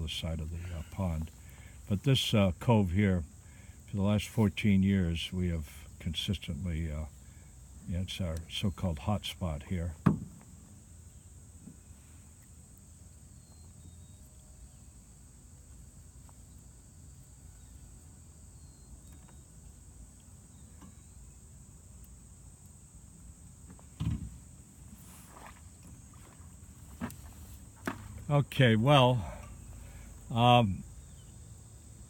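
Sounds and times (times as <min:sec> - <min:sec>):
high insect drone: 0:00.0 - 0:32.0
thump: 0:10.0 - 0:10.5, 0:24.0 - 0:24.4.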